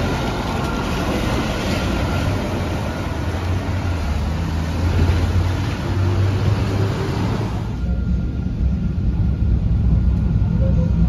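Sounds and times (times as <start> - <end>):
tyres hissing on wet road: 0.0 - 7.8
tram crossing: 0.0 - 11.0
truck and car engines: 0.0 - 11.0.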